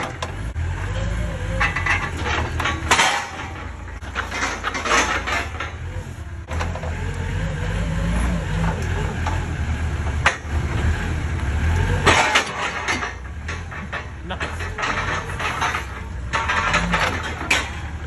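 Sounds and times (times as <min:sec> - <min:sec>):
vehicle engine rumbling: 0:00.0 - 0:18.0.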